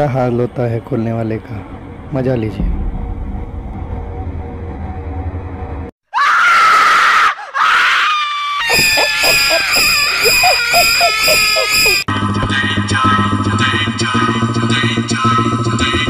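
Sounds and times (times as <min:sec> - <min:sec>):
person screaming: 0:06.1 - 0:12.0
person crying out: 0:06.2 - 0:12.0.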